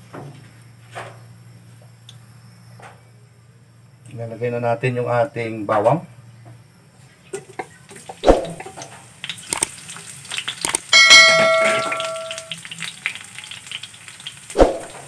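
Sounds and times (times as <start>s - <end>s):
garlic sizzling in hot oil: 7.3s - 15.0s
bell chime sound effect: 11.0s - 12.5s.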